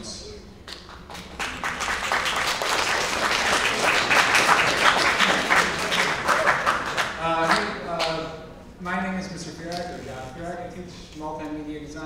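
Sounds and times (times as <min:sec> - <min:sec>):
audience applauding: 0:00.9 - 0:08.2.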